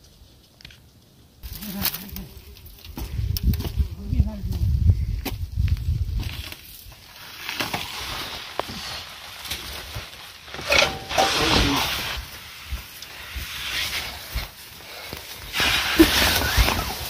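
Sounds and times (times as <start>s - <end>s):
rustling grass and hay: 5.6s - 17.0s.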